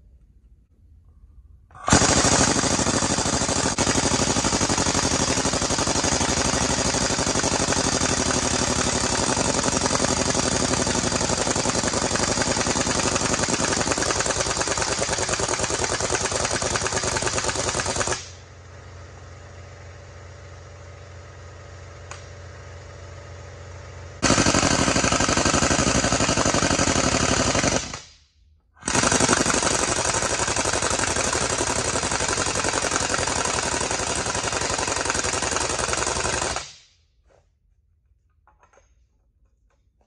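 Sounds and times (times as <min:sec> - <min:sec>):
air impact wrench hammering: 0:01.7 - 0:18.5, 0:24.2 - 0:28.2, 0:28.8 - 0:36.9.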